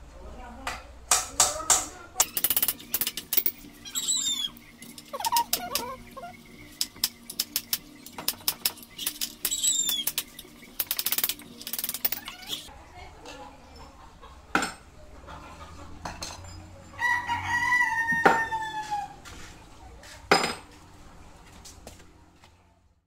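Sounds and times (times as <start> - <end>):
bird chirping: 2.2 - 8.2, 8.8 - 10.8.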